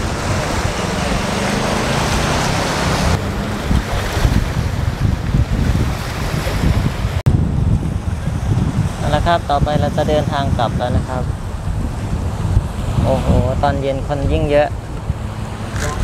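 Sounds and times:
waves washing on rocky shore: 0.0 - 7.2
wind buffeting microphone: 0.0 - 16.0.

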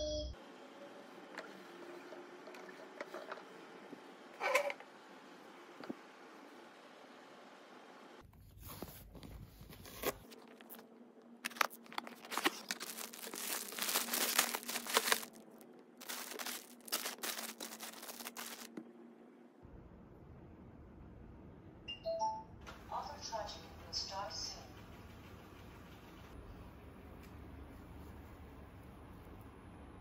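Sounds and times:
plastic packaging tearing: 11.4 - 18.8.

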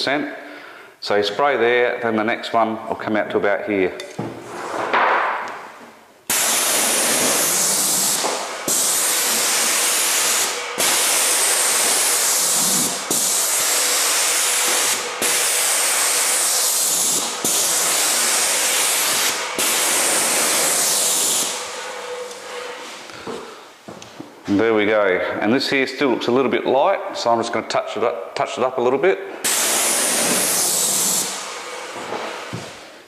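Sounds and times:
paint sprayer hissing: 6.3 - 23.6, 29.4 - 33.0.

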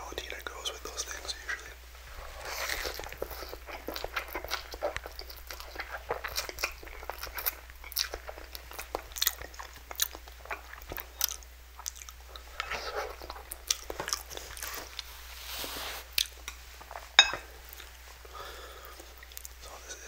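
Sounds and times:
chewing and slurping noodles: 2.1 - 15.1.

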